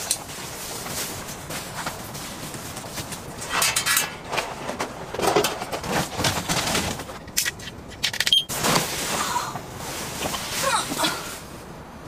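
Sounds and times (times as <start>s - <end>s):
plastic rustling and crinkling: 0.0s - 7.3s, 8.5s - 11.6s.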